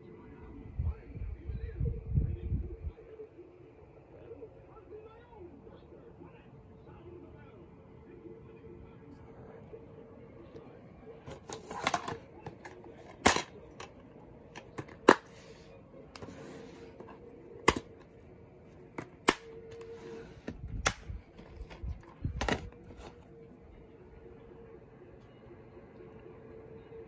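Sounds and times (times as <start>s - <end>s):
plastic case rustling: 11.3s - 13.9s, 19.0s - 23.3s
plastic case clicking shut: 17.6s - 18.0s, 20.8s - 22.8s.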